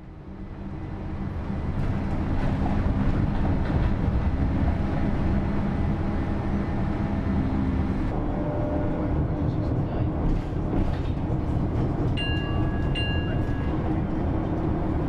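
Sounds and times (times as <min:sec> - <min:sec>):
bus engine and road rumble: 0:00.0 - 0:15.0.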